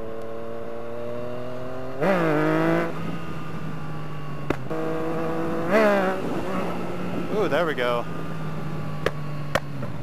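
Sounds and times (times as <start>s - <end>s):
motorcycle engine revving: 0.0s - 10.0s
exhaust pop: 4.4s - 4.8s.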